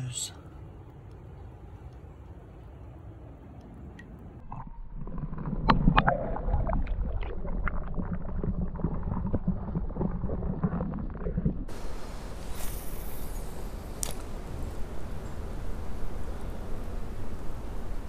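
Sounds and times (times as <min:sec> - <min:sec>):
underwater clicks and knocks: 0:04.0 - 0:11.6
muffled underwater water sloshing: 0:04.0 - 0:12.6.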